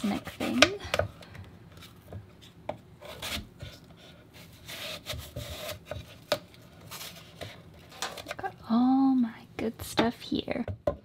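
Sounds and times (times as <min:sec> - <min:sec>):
knife slicing apple: 0:03.0 - 0:06.4.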